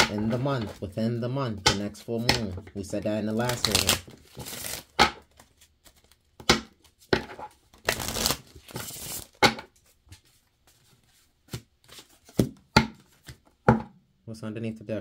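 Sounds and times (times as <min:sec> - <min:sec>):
cards shuffling: 0:02.2 - 0:13.5.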